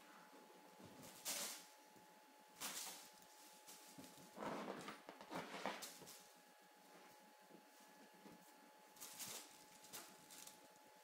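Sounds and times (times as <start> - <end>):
plastic bag crinkling: 9.0 - 10.7.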